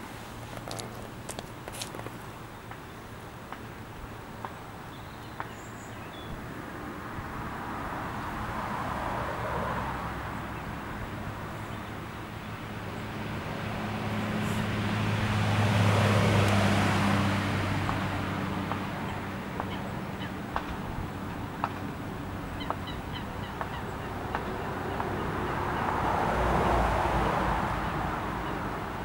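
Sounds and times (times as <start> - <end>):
low engine hum: 0.0 - 29.0
vehicle passing by: 6.6 - 29.0.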